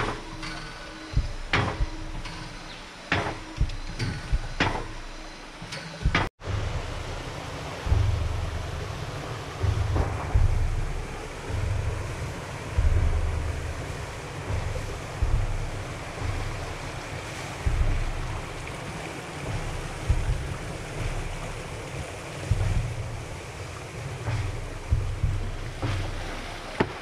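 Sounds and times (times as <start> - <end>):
flowing water rushing: 0.0 - 27.0
wind buffeting microphone: 6.0 - 27.0.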